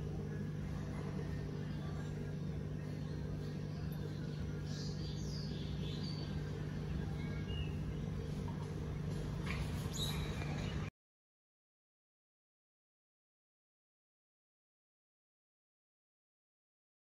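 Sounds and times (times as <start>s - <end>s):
aquarium pump humming: 0.0s - 10.9s
bird chirps: 2.8s - 8.4s, 9.4s - 10.9s.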